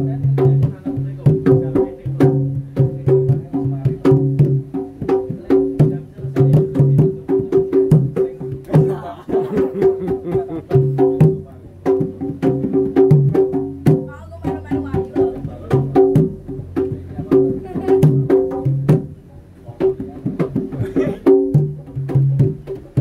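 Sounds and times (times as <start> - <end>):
hand drum strokes: 0.0 - 23.0.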